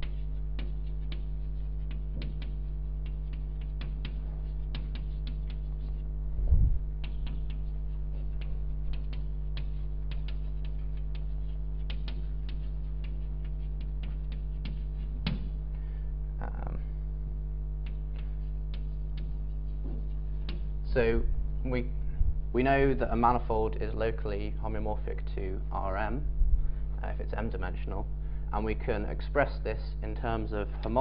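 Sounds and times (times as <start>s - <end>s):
chalk tapping and scratching: 0.0s - 6.2s, 7.0s - 15.7s, 17.8s - 20.8s
electrical hum: 0.0s - 31.0s.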